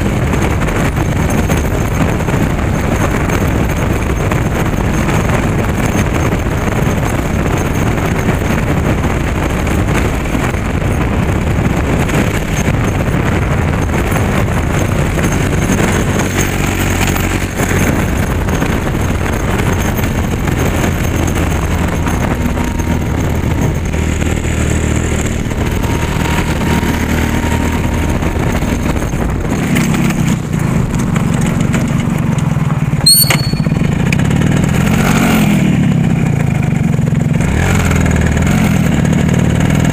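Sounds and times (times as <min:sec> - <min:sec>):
vehicle engine running: 0:00.0 - 0:26.9
road and wind noise: 0:00.0 - 0:39.9
sharp click: 0:33.1 - 0:34.0
short high squeak: 0:33.1 - 0:34.1.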